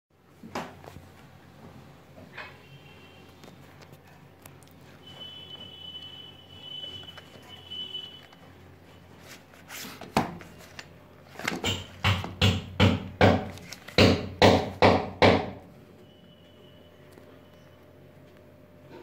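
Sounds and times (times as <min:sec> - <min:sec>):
cardboard boxes knocking on countertop: 0:11.5 - 0:15.5.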